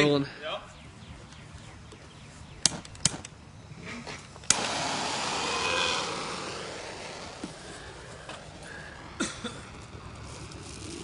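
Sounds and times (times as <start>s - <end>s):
flame whooshing and hissing: 4.4s - 11.0s.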